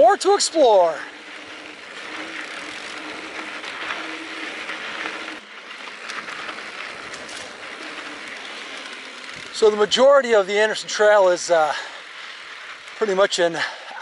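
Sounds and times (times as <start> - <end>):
bike rolling over dirt trail: 0.0 - 14.0
bike freehub ratcheting buzz: 0.9 - 9.7.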